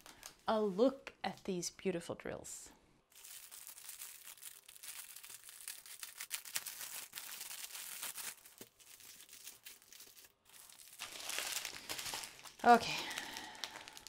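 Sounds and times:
plastic bags rustling: 0:03.1 - 0:14.0
plastic wrap crinkling and tearing: 0:03.1 - 0:14.0.

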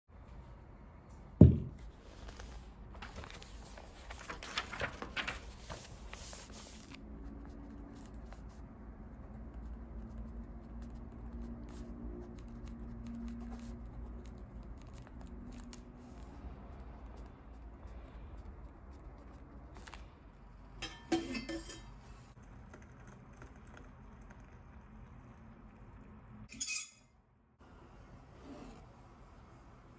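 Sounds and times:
knock on table: 0:01.4 - 0:01.8
paper rustling: 0:02.0 - 0:07.0.

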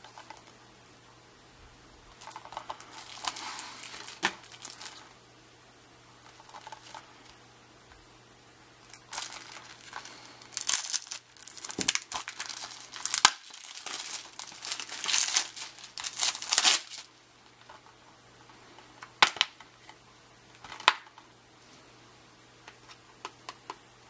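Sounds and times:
plastic wrap crinkling and tearing: 0:02.2 - 0:05.1, 0:08.9 - 0:17.1.

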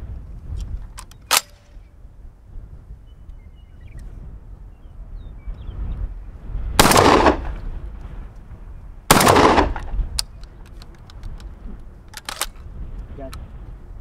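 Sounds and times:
shotgun shots with echo: 0:06.8 - 0:07.6, 0:09.1 - 0:10.0.

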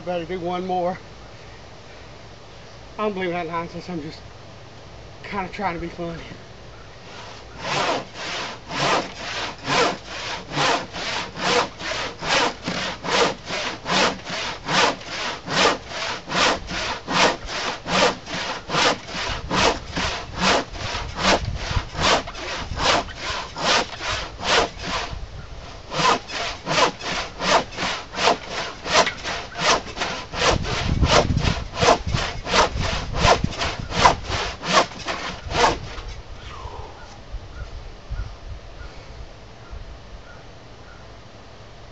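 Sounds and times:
handsaw rasping through wood: 0:07.1 - 0:36.0.

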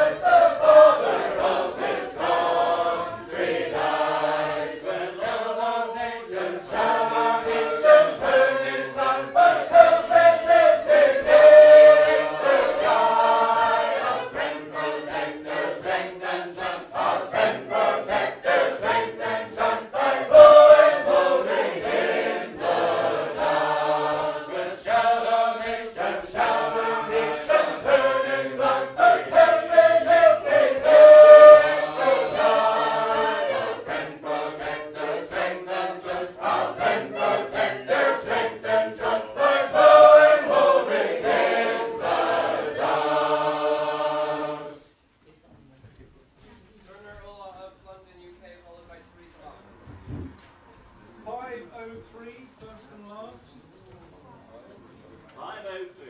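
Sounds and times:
group singing unaccompanied harmony: 0:00.0 - 0:45.0.

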